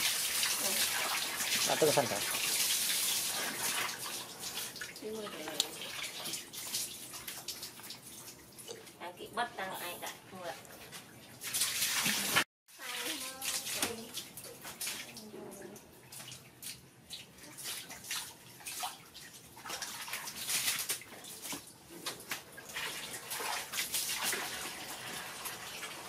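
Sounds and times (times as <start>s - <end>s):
hose water pouring into bucket: 0.0s - 8.4s, 11.4s - 14.2s, 22.6s - 26.0s
splashing in water: 10.6s - 15.3s, 16.1s - 25.2s.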